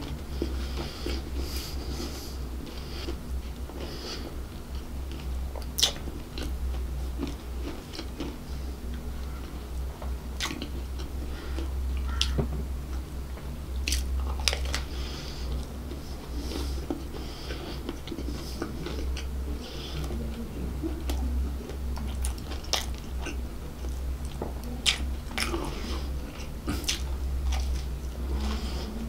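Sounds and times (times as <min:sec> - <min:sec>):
steady low hum: 0:00.0 - 0:29.0
chewing and biting: 0:05.1 - 0:12.4, 0:13.8 - 0:29.0.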